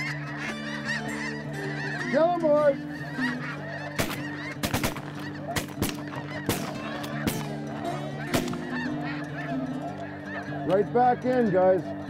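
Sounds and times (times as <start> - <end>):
flock of geese honking: 0.0 - 12.0
shotgun blasts: 4.0 - 7.5.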